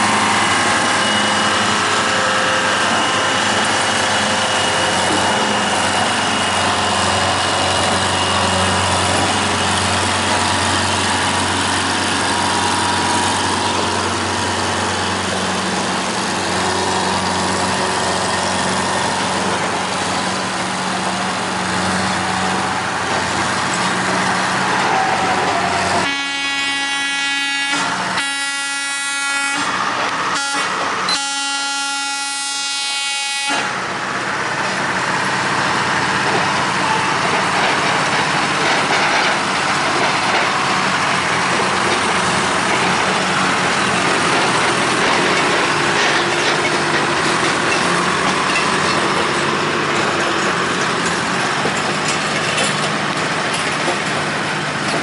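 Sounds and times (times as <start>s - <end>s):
rail machine engines running: 0.0s - 55.0s
train horn blasts: 26.0s - 33.8s.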